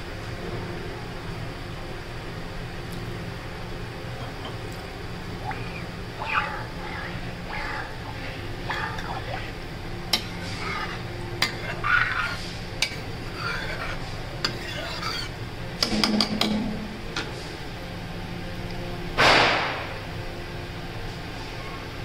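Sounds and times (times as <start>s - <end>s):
steady low hum: 0.0s - 21.4s
ladle stirring simmering gravy: 4.0s - 15.9s.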